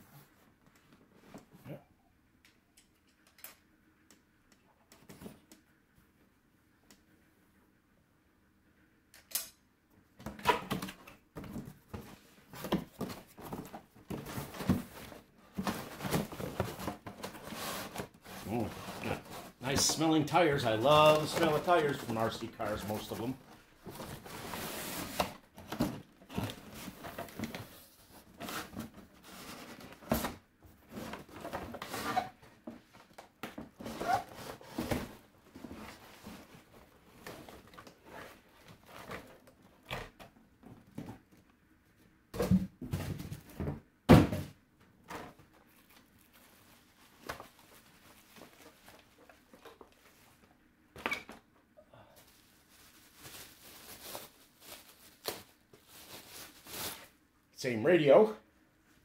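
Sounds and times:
knocks and thunks of packaged parts: 0:10.2 - 0:18.2, 0:42.3 - 0:45.5
packaging rustling: 0:12.0 - 0:30.1, 0:52.2 - 0:57.2.

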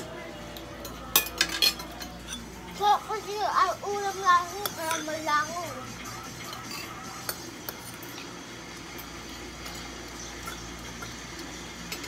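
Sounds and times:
cutlery clinking on plates: 0:00.6 - 0:02.5, 0:04.6 - 0:05.1, 0:06.4 - 0:08.3.

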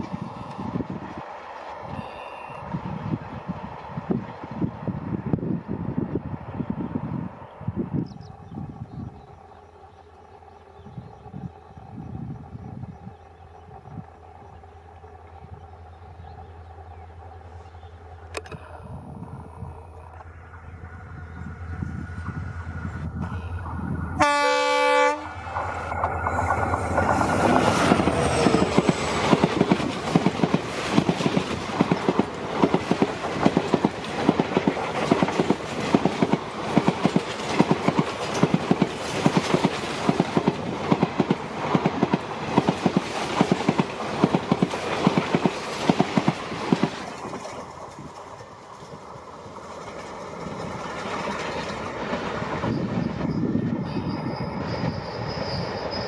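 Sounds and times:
diesel locomotive passing: 0:00.0 - 0:56.0
train wheels clattering over rail joints: 0:25.5 - 0:53.4.

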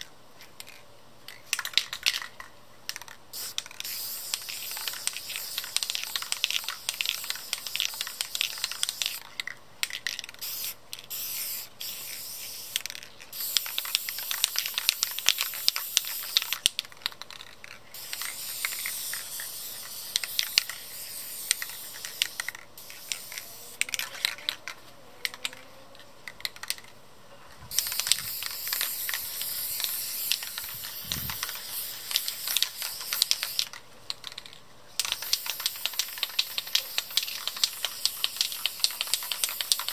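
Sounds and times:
aerosol spray can hissing: 0:03.4 - 0:09.3, 0:10.4 - 0:16.7, 0:17.9 - 0:24.0, 0:27.7 - 0:33.8, 0:35.0 - 0:39.9.

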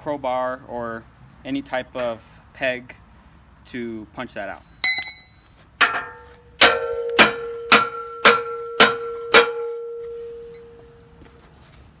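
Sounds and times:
sledgehammer clanging on steel: 0:04.8 - 0:10.8
metal pole ringing: 0:04.8 - 0:11.0.

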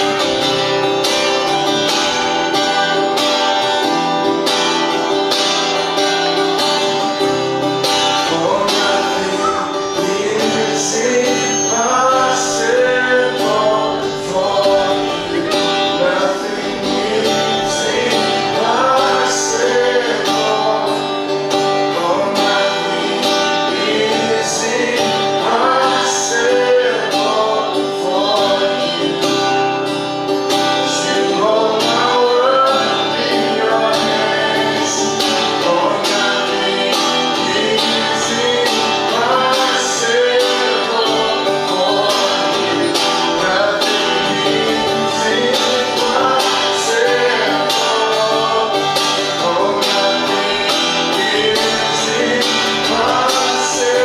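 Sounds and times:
voices singing: 0:00.0 - 0:54.0
worship song with acoustic guitar: 0:00.0 - 0:54.0.

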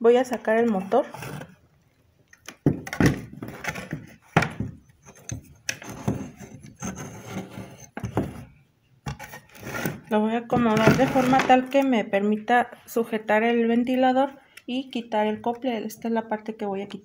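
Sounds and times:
plastic rubbing and scraping: 0:00.2 - 0:01.7, 0:02.5 - 0:11.8.

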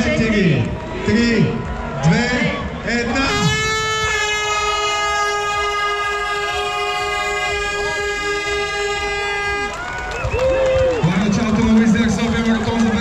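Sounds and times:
horn blowing long blast: 0:03.0 - 0:10.0.

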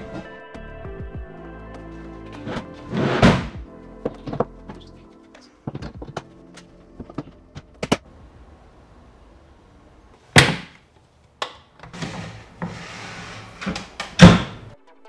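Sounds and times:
loud sharp thunk: 0:03.2 - 0:03.6.

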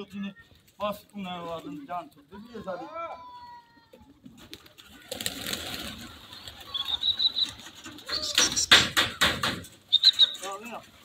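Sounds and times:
pigeons flapping wings: 0:04.2 - 0:11.0
high bird chirps: 0:06.2 - 0:08.9, 0:09.9 - 0:10.6
sharp wing claps: 0:06.5 - 0:10.3.

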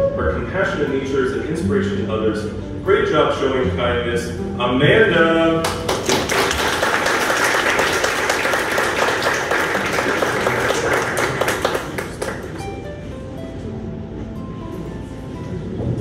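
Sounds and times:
audience applauding: 0:05.6 - 0:12.9.

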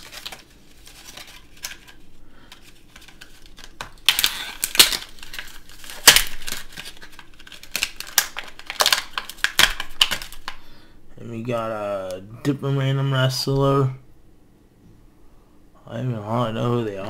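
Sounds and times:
plastic packaging crinkling: 0:00.0 - 0:10.6
sharp crackles and snaps: 0:02.9 - 0:10.6.

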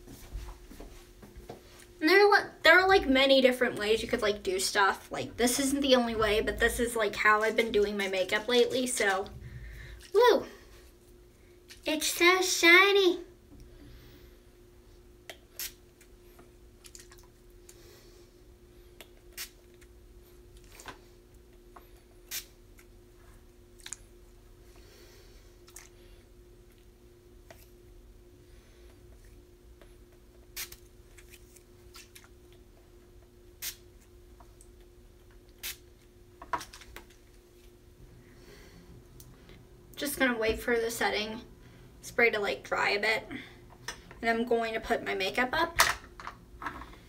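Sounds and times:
spray bottle spritzes: 0:19.4 - 0:19.6, 0:22.3 - 0:22.5, 0:30.6 - 0:30.8.

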